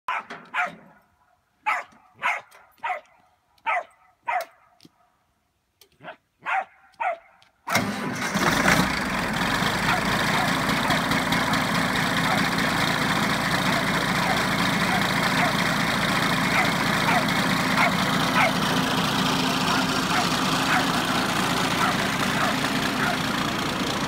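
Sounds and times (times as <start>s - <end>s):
diesel tractor engine running: 7.7s - 24.0s.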